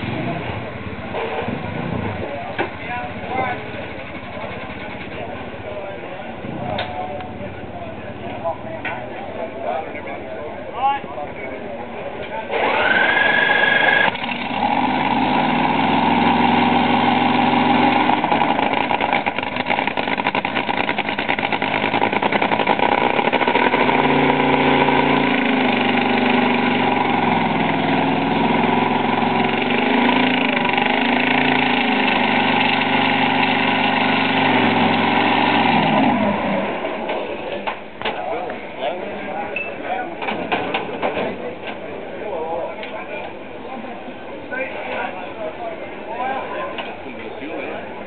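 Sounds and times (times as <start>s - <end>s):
dragster engine idling and revving: 0.0s - 8.5s, 12.5s - 38.0s.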